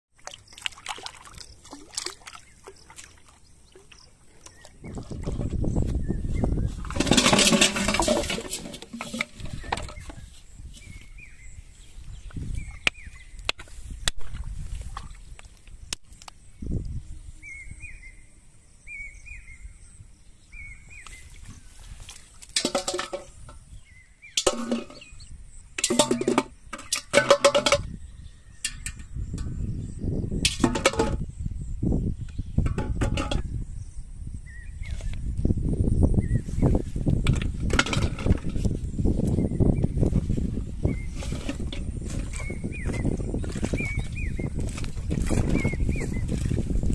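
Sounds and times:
handling noise: 6.6s - 11.0s, 22.4s - 23.6s, 37.1s - 46.7s
plastic bottles clattering: 6.7s - 10.2s, 22.5s - 23.6s, 24.4s - 25.2s, 25.8s - 28.0s, 30.5s - 31.2s, 32.6s - 33.5s, 37.2s - 38.8s, 41.1s - 43.9s
bird chirping: 40.8s - 46.4s.

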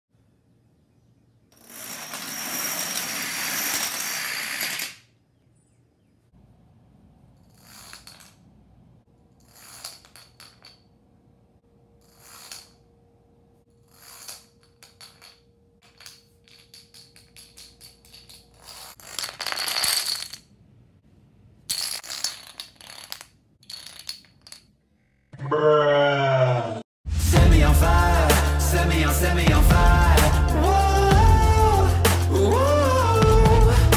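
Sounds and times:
plastic dominoes clattering on wood: 1.6s - 5.1s, 7.5s - 8.4s, 9.4s - 10.9s, 13.9s - 20.5s, 21.7s - 24.7s.

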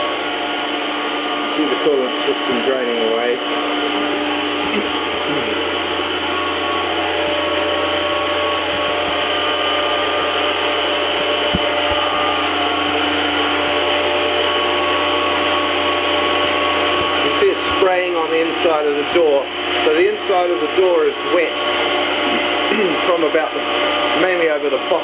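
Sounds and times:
milling machine spindle whine: 0.0s - 25.0s.

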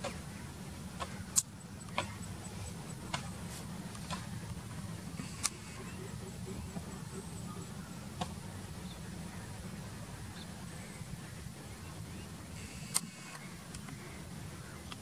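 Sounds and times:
distant jet engines rumbling: 0.0s - 15.0s
sharp click: 12.9s - 13.8s.

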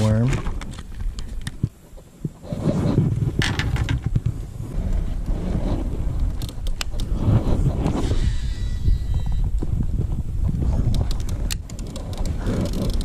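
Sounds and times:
wind buffeting microphone: 0.4s - 13.0s
reel spool whine: 8.0s - 9.6s
fishing reel clicks and rattles: 10.9s - 13.0s.

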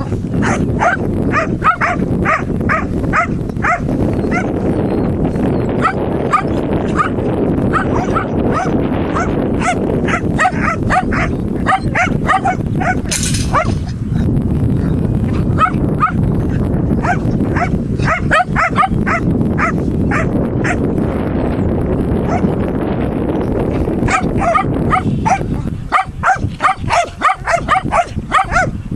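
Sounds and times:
dog barking: 0.0s - 4.6s, 5.8s - 14.0s, 15.3s - 16.2s, 17.0s - 20.8s, 22.2s - 22.6s, 24.0s - 28.8s
low rumble: 0.0s - 28.9s.

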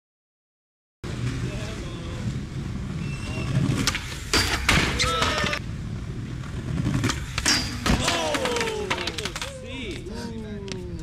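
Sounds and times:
people calling out: 7.9s - 10.0s.

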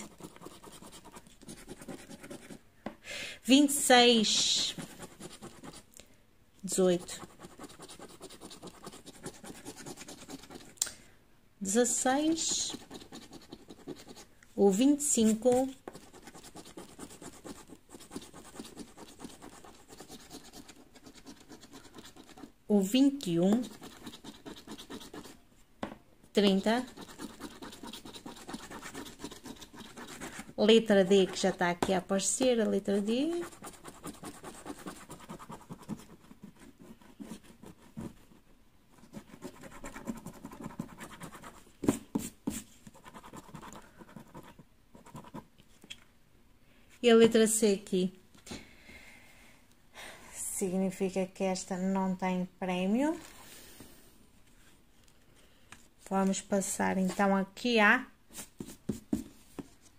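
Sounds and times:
coin scratching a scratch card: 0.0s - 2.6s, 6.9s - 10.7s, 12.3s - 14.2s, 15.2s - 22.5s, 23.4s - 25.4s, 26.5s - 31.6s, 32.9s - 36.3s.

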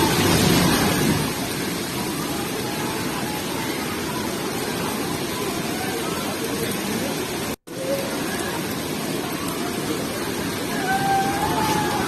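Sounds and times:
floodwater roaring: 0.0s - 12.0s.

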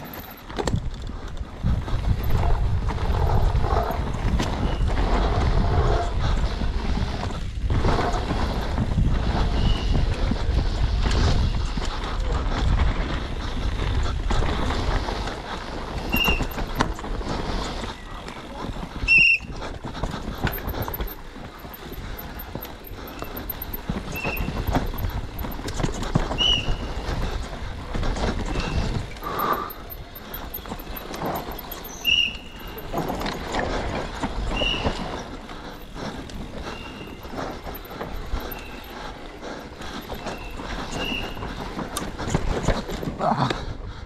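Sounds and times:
mountain bike rattling over bumps: 0.0s - 44.0s
short high squeaks: 16.0s - 16.8s, 23.1s - 25.6s, 29.7s - 33.2s, 34.5s - 35.2s, 40.2s - 41.5s.

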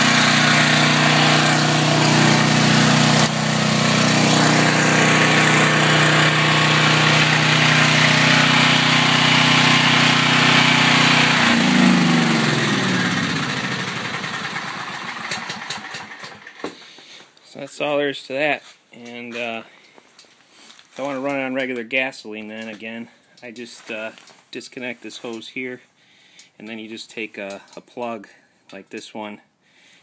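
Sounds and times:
generator engine running: 0.0s - 16.7s
engine winding down: 0.0s - 16.8s
engine clicks: 14.6s - 16.7s.

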